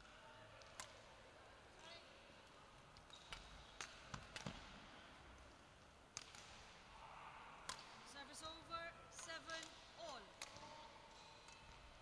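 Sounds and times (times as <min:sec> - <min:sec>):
rackets hitting shuttlecock: 0:00.6 - 0:01.1, 0:03.0 - 0:04.8, 0:06.1 - 0:06.8, 0:07.6 - 0:08.0, 0:09.1 - 0:12.0.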